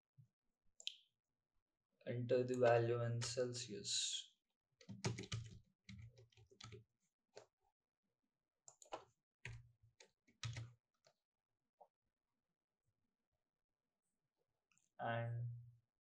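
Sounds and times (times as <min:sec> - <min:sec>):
keyboard typing: 0:04.8 - 0:06.8, 0:08.7 - 0:09.6, 0:10.4 - 0:10.7.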